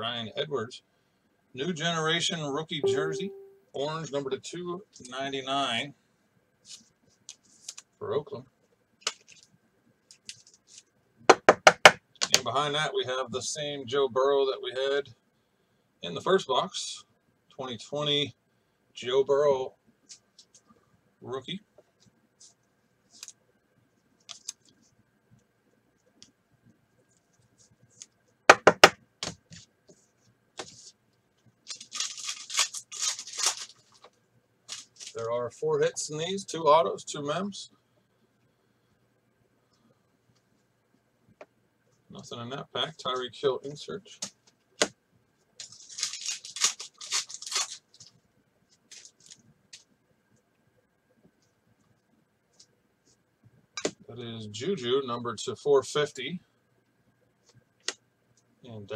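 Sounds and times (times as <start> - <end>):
foil wrapper crinkling and tearing: 31.7 - 34.1, 34.7 - 35.2, 45.6 - 48.1
cards rustling: 31.7 - 35.2, 45.6 - 48.2, 48.8 - 49.4.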